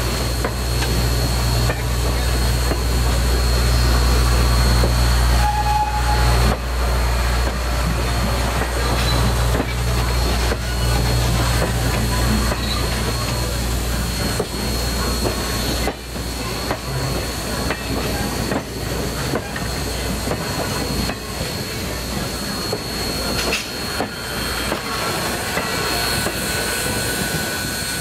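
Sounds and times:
steam hissing: 0.0 - 28.0
train wheels clicking over rail joints: 6.4 - 28.0.

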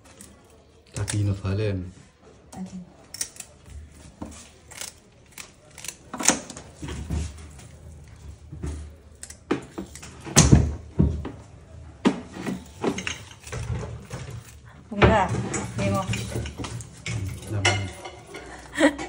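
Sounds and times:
scissors scraping fish scales: 4.6 - 6.1.

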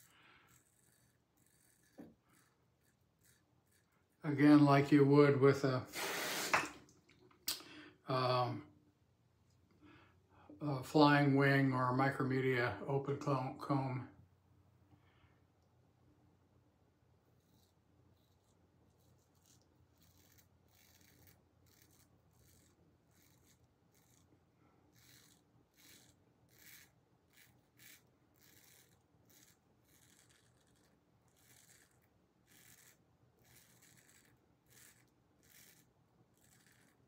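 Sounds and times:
razor scraping beard stubble: 0.0 - 5.1, 17.3 - 37.0.

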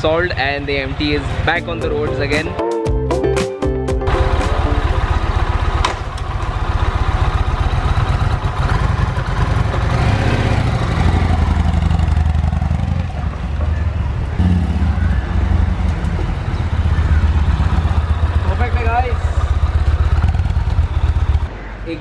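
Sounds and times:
motorcycle engine revving: 4.6 - 21.5.

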